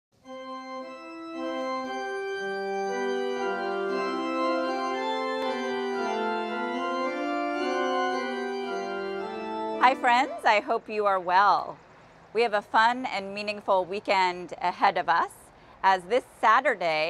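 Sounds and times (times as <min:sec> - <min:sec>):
organ playing sustained chords: 0:00.2 - 0:11.7.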